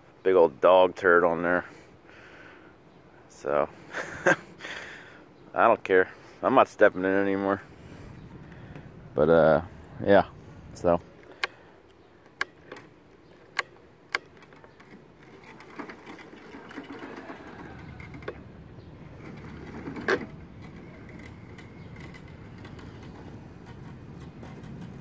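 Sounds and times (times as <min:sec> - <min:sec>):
sharp clicks: 0:11.2 - 0:16.0
electric motors whirring: 0:14.2 - 0:25.0.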